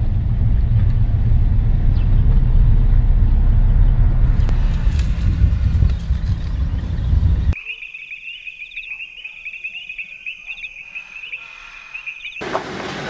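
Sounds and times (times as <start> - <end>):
loud low rumbling: 0.0 - 7.6
insects trilling: 7.6 - 12.4.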